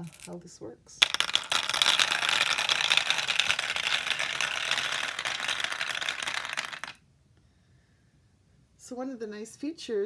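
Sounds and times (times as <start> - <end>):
steel marbles clicking in marble run: 0.0 - 0.4, 1.0 - 7.0.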